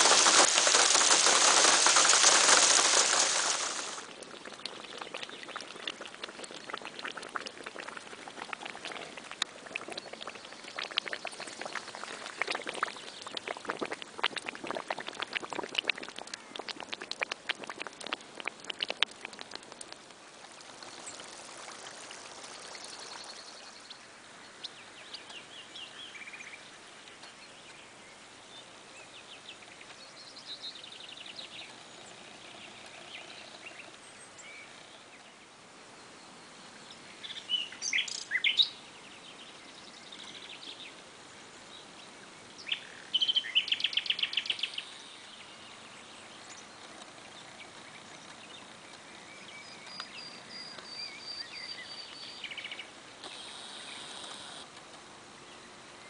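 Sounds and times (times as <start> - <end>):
small birds chirping: 0.0 - 4.0, 4.7 - 6.1, 20.6 - 27.9, 36.0 - 54.7
waterlogged ground bubbling and fizzing: 0.0 - 27.5, 37.1 - 40.9, 42.6 - 55.1.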